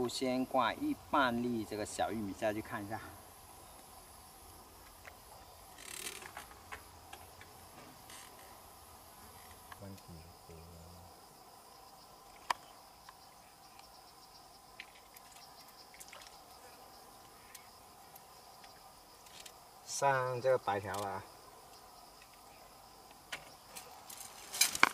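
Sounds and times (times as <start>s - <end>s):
insects chirring: 0.0s - 24.9s
short rustle: 23.7s - 24.9s.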